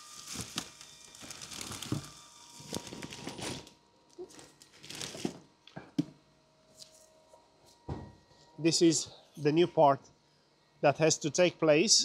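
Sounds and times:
packaging rustling and crinkling: 0:00.0 - 0:05.5.

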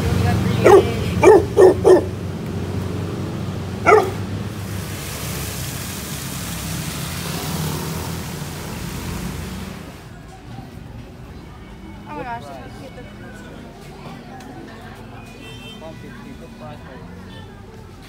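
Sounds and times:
road travel rushing noise: 0:00.0 - 0:18.0
dog barking: 0:00.6 - 0:02.2, 0:03.8 - 0:04.2.

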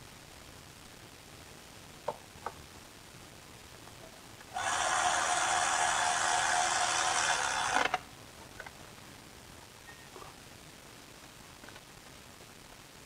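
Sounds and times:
cordless electric ratchet running: 0:04.6 - 0:08.0.

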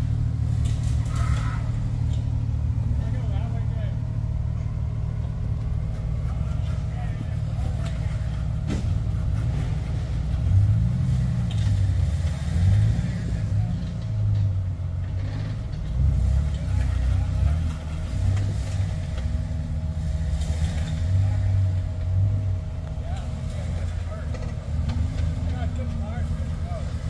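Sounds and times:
engine revving: 0:00.0 - 0:27.0.

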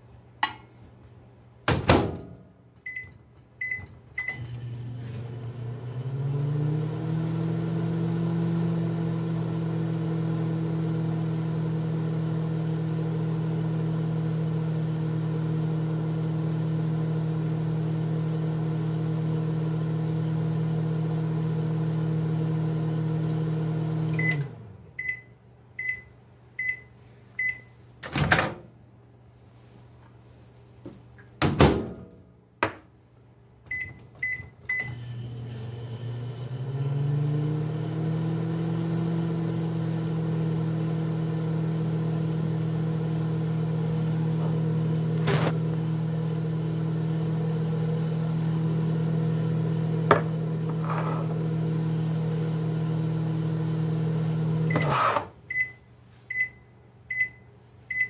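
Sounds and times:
microwave humming: 0:03.6 - 0:25.3, 0:33.7 - 0:58.0.

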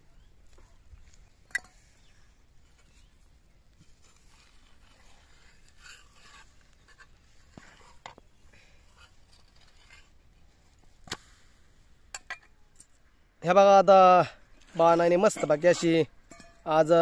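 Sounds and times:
metal spatula scraping griddle: 0:03.9 - 0:08.1.

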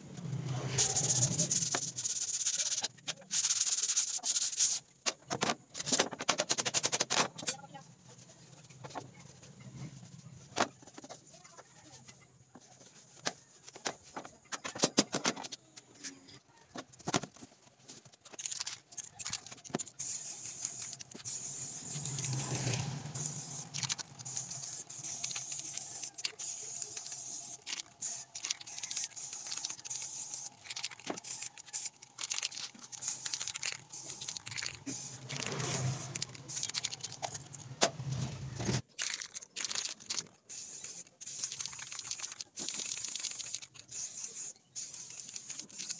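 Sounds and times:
spray paint can hissing: 0:00.5 - 0:04.8, 0:18.4 - 0:37.7, 0:39.0 - 0:45.9
spray can rattling clicks: 0:18.2 - 0:37.7, 0:38.9 - 0:45.9.

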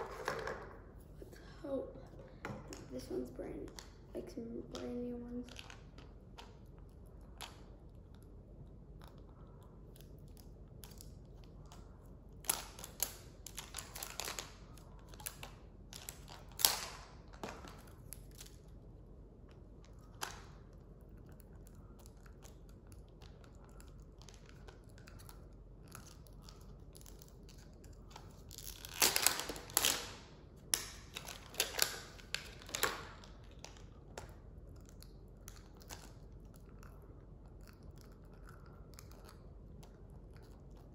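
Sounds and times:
plastic wrapping crinkling: 0:12.4 - 0:18.6, 0:23.8 - 0:34.3.

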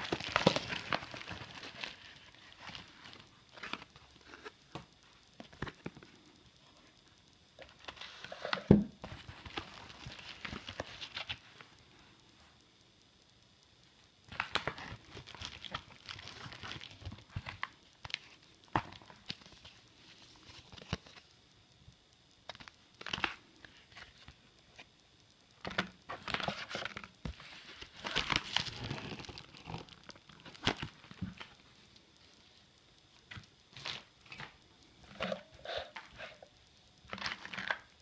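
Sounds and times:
packaging crinkling and rustling: 0:00.0 - 0:06.1, 0:07.6 - 0:11.5, 0:14.3 - 0:21.3, 0:25.6 - 0:31.6, 0:33.3 - 0:38.0
sharp clicks: 0:00.1 - 0:08.3, 0:09.0 - 0:38.0.

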